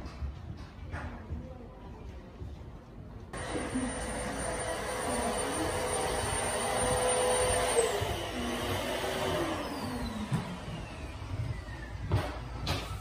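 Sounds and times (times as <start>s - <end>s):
electric blower motor whining: 3.4s - 12.6s.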